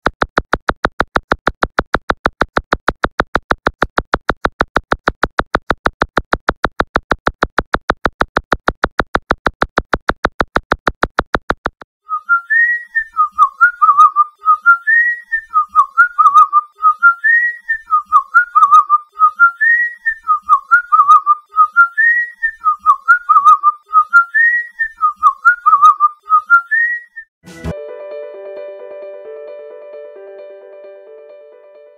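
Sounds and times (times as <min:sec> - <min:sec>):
whistled warbling phrase: 0:12.1 - 0:27.3.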